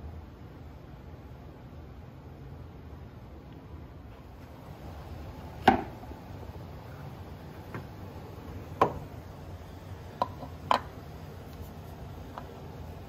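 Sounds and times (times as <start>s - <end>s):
low steady hum: 0.0s - 13.0s
tools knocking and clicking: 10.2s - 11.0s.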